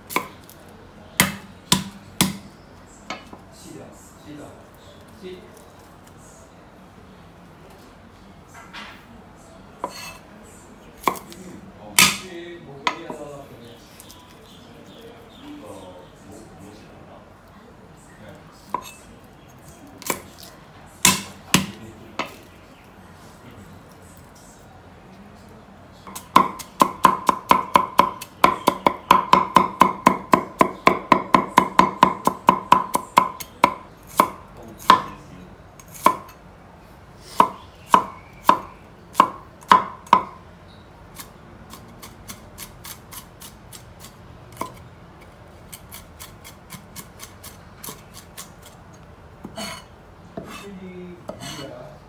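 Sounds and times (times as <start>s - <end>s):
knife chopping on cutting board: 9.8s - 10.2s, 26.1s - 35.2s, 44.6s - 44.8s.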